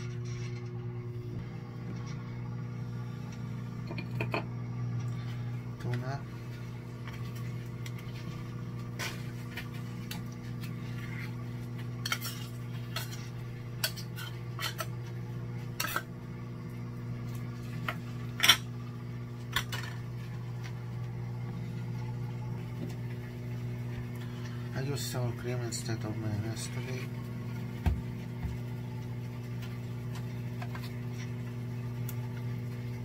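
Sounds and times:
microwave oven humming: 0.0 - 33.0.

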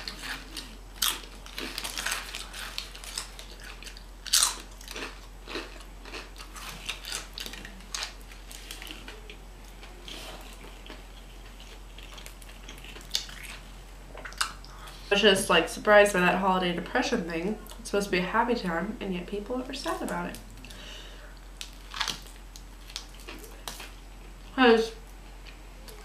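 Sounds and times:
person crunching and chewing chips: 0.0 - 15.1, 21.6 - 24.0.

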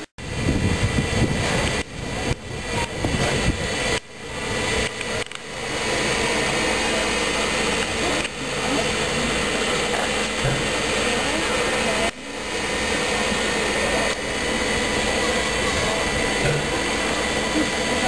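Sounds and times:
steam hissing: 0.0 - 18.0.

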